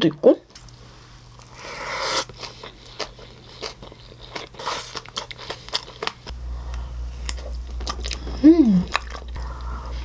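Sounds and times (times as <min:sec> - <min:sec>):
wet chewing with lip smacks: 0:07.2 - 0:09.7.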